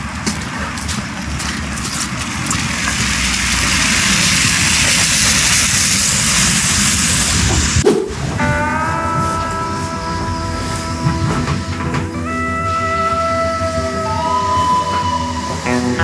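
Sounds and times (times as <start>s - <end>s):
tractor engine rumble: 0.0s - 16.0s
rushing hiss: 2.8s - 8.2s.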